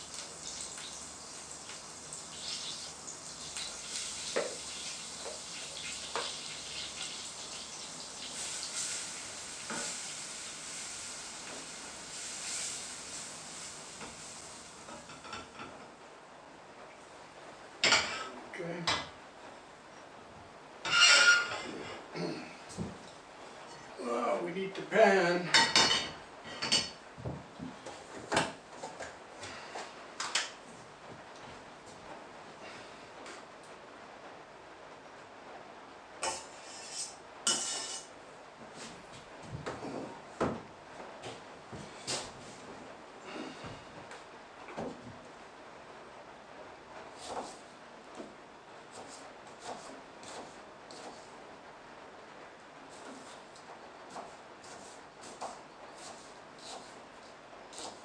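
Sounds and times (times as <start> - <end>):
flour sizzling in a saucepan: 0.0 - 15.5, 36.2 - 38.1, 54.1 - 57.0, 57.7 - 58.0.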